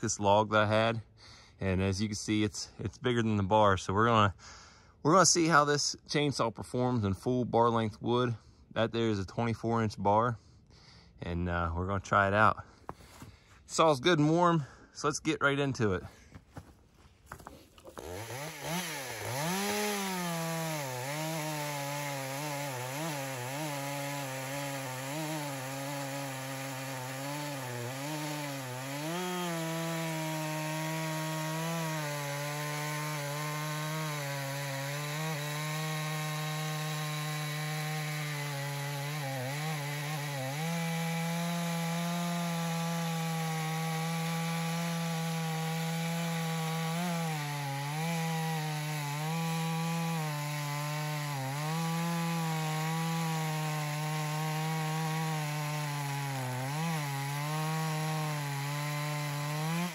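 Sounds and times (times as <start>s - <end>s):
chainsaw cutting log: 17.3s - 59.9s.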